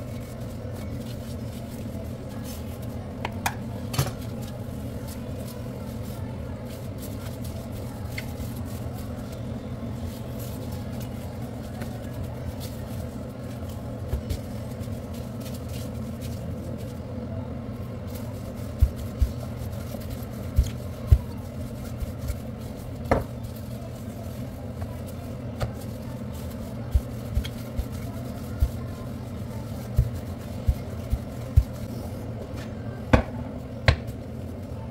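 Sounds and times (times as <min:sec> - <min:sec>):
steady low hum: 0:00.0 - 0:34.9
hands slapping dough on counter: 0:23.0 - 0:23.4, 0:33.1 - 0:34.2.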